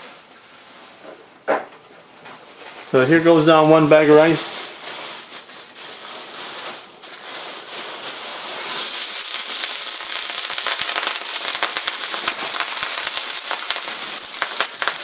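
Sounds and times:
rice sizzling in hot oil: 0:04.7 - 0:15.0.

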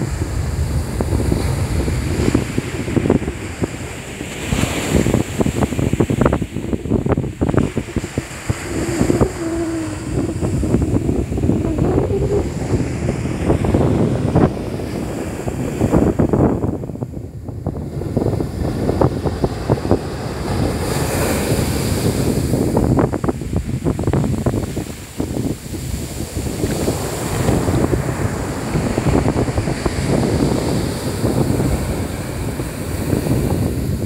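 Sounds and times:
hissing wash of foam: 0:00.0 - 0:16.3
surf breaking on a beach: 0:00.0 - 0:34.0
wind buffeting microphone: 0:00.0 - 0:34.0.

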